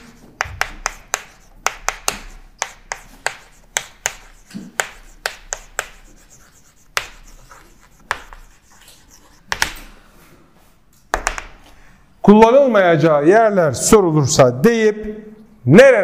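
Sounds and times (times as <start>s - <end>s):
chalk scratching on blackboard: 0.0s - 10.0s
chalk tapping on blackboard: 0.0s - 10.0s, 11.1s - 11.6s.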